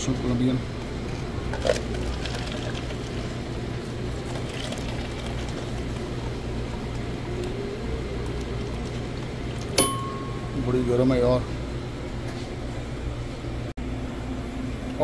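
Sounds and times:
steady low hum: 0:00.0 - 0:15.0
coffee pouring into paper cup: 0:01.5 - 0:06.3, 0:07.3 - 0:09.8.

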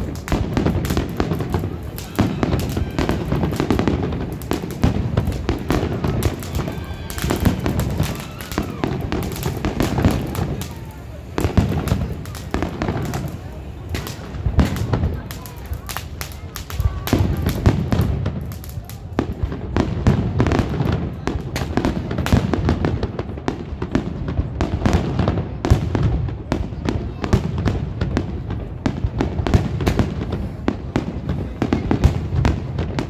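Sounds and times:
fireworks bangs and crackles: 0:00.0 - 0:33.0.

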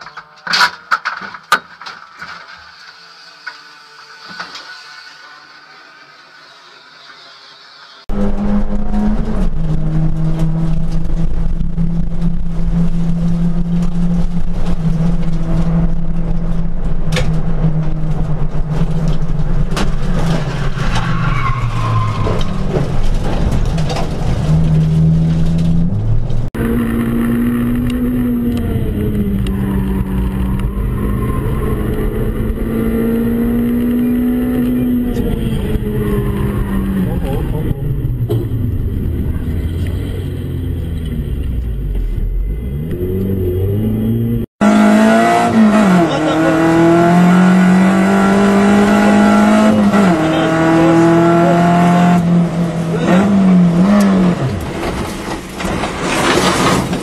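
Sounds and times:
race car engine at high revs: 0:26.6 - 0:41.8, 0:42.4 - 0:55.0.

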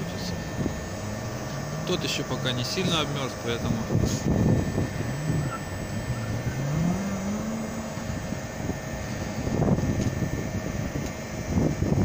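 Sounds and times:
air conditioner compressor hum: 0:00.0 - 0:12.0
rising tone: 0:03.8 - 0:10.4.

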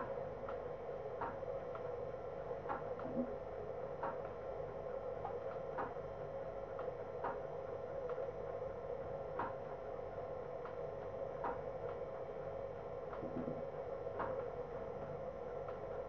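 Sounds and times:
faint irregular ticks: 0:00.0 - 0:02.0, 0:10.5 - 0:13.3
steady hum: 0:00.0 - 0:16.0.

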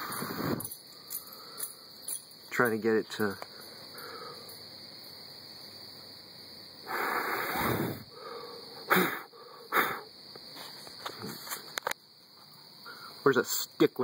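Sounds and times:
person breathing: 0:00.0 - 0:02.0, 0:03.5 - 0:04.6, 0:06.9 - 0:10.0
crickets chirring: 0:00.0 - 0:14.0.

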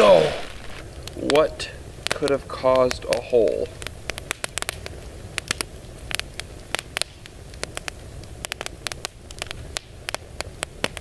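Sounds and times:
low steady rumble: 0:00.0 - 0:03.0
campfire crackling and popping: 0:00.0 - 0:11.0.

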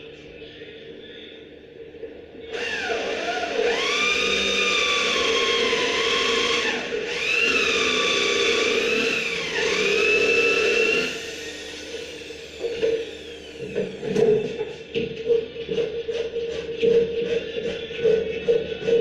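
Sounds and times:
electric drill into wood: 0:02.5 - 0:14.3.

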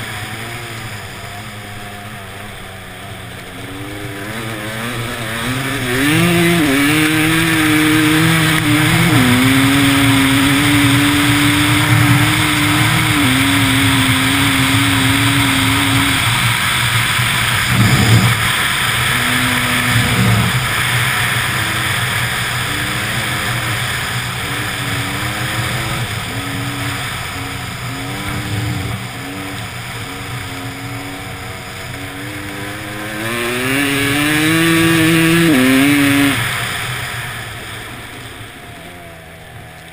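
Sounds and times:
vehicle engine revving: 0:00.0 - 0:39.9
tyre noise: 0:03.8 - 0:36.5
wind noise: 0:05.9 - 0:23.5.

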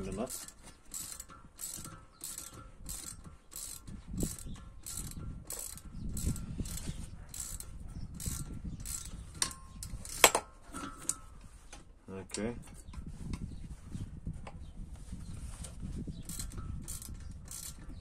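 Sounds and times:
ratchet wrench clicking: 0:00.0 - 0:10.4, 0:16.2 - 0:18.0.

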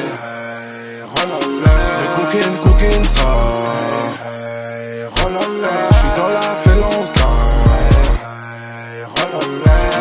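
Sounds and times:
instrumental hip hop beat: 0:00.0 - 0:10.0
deep bass notes dropping: 0:02.7 - 0:03.5, 0:07.2 - 0:08.2
held melody: 0:05.2 - 0:08.2.

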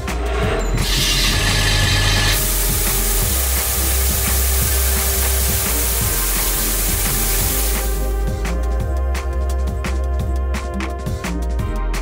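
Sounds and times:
compressed air hissing: 0:00.8 - 0:08.3.

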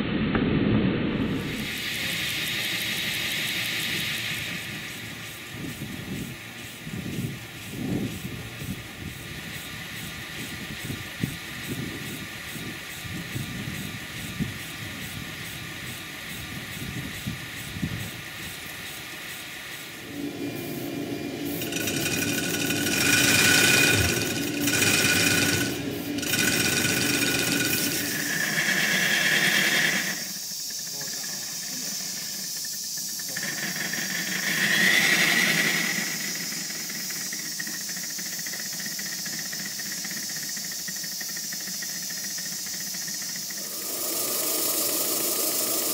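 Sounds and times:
steam hissing: 0:01.2 - 0:45.9
mechanical rattle with ticks: 0:01.6 - 0:45.9.

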